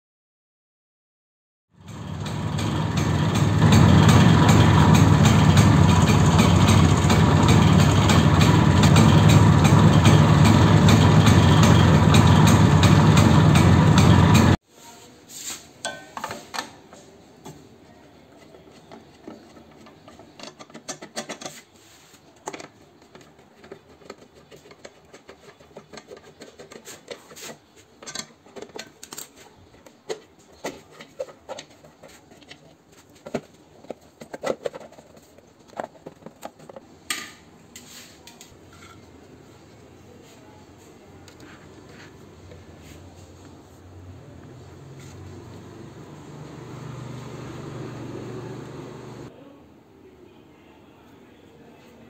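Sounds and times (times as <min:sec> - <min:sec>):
scooter engine cutting off: 0:01.8 - 0:14.6, 0:44.0 - 0:49.3
light metallic clicks and scrapes: 0:18.4 - 0:21.8.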